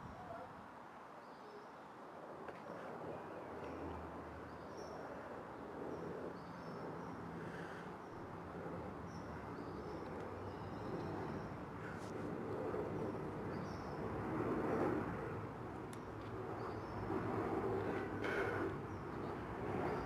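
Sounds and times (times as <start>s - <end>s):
distant traffic rumble: 2.3s - 20.0s.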